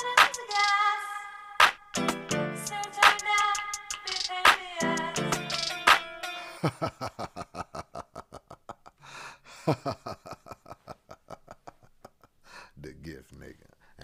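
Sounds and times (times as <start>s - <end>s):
hip-hop beat: 0.0s - 1.0s, 1.6s - 6.6s
fast ticks: 4.0s - 4.3s.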